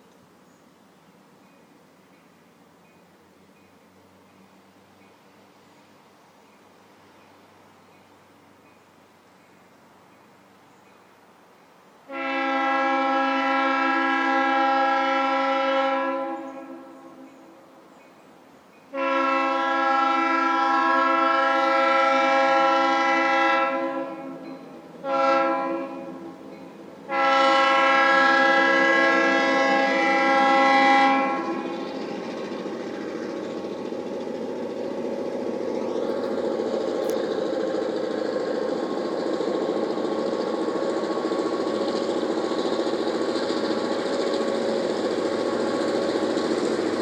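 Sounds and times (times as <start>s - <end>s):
locomotive air horn blasts: 12.1s - 17.3s, 18.9s - 31.9s
diesel engine running: 31.2s - 47.0s.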